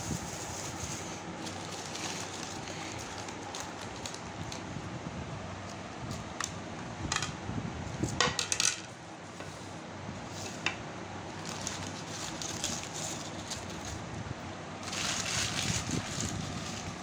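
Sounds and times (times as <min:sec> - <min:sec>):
paper crinkling and rustling: 0:00.1 - 0:04.8, 0:11.3 - 0:14.1, 0:14.8 - 0:17.0
plates tapping on newspaper: 0:08.2 - 0:08.8.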